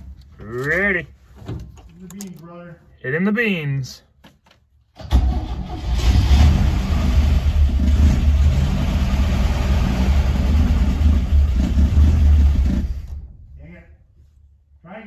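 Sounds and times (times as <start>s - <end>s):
car engine rumbling: 5.0s - 14.1s.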